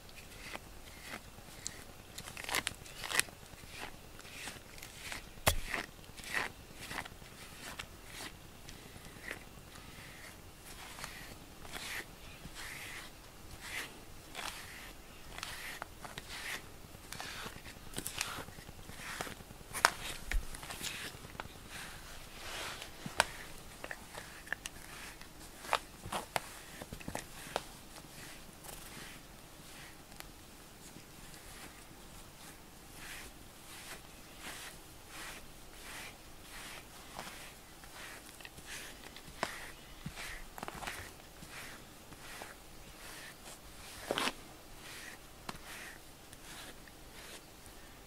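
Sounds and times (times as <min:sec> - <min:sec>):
brush swishing through fur: 0:03.6 - 0:48.0.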